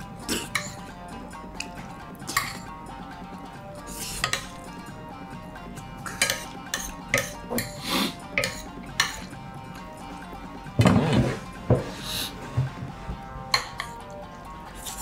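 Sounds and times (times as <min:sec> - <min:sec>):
spoon scraping a plate: 0:03.9 - 0:04.6, 0:06.0 - 0:09.3, 0:10.8 - 0:12.0.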